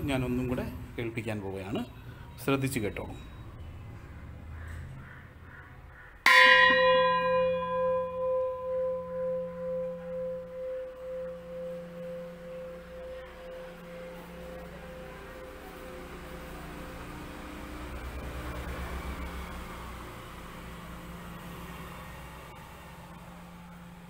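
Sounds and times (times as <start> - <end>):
long wavering metallic ring: 6.2 - 24.0
metal vessel struck on rim: 6.3 - 15.0.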